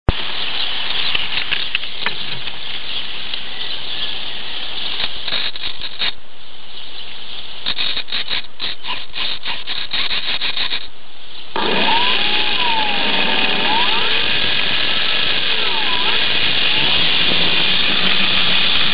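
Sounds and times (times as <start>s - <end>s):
steady static hiss: 0.1s - 18.9s
crackling clicks of handling noise: 0.9s - 2.6s, 4.9s - 6.2s, 7.6s - 10.9s.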